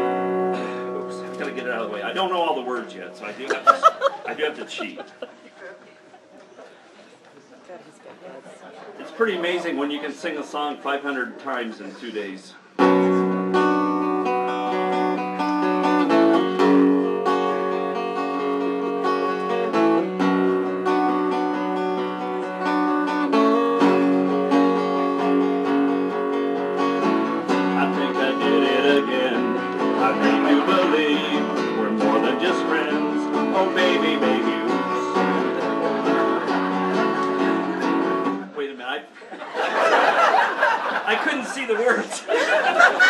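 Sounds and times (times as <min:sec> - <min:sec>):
acoustic guitar strumming chords: 0:00.0 - 0:03.7, 0:12.7 - 0:38.6.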